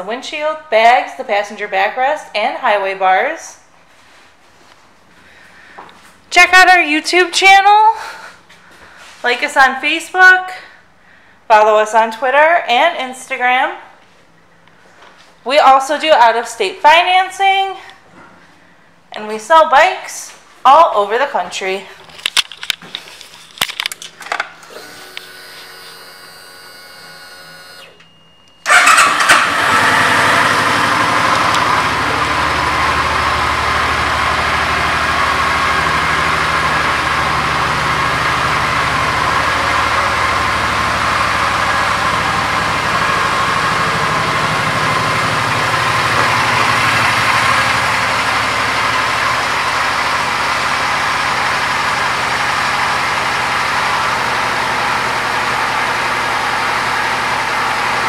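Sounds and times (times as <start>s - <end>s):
motorcycle engine starting and idling: 23.8s - 58.0s.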